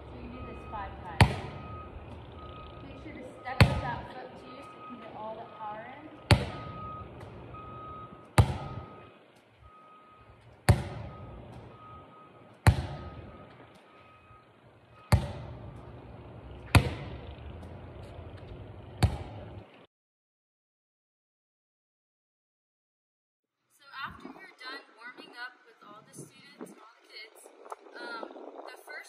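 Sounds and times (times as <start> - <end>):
volleyball smacking on concrete: 1.1 - 2.2, 3.5 - 4.2, 6.2 - 7.4, 8.3 - 8.9, 10.6 - 11.7, 12.6 - 13.9, 15.0 - 16.0, 16.6 - 19.6.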